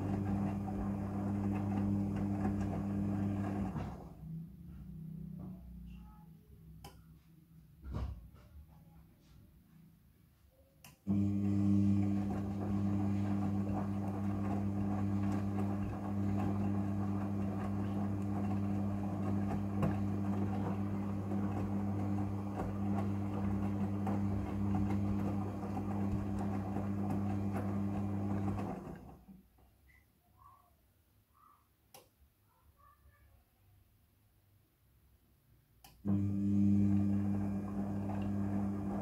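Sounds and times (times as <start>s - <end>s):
washing machine motor humming: 0.0s - 5.7s, 11.1s - 29.4s, 35.9s - 39.0s
wet laundry tumbling: 11.3s - 29.2s.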